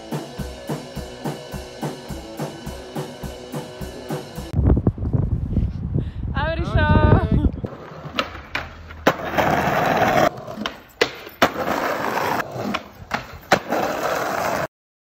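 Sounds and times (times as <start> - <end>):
skateboard wheels rolling on pavement: 7.6 - 14.7
skateboard clacking on ground: 7.7 - 14.7.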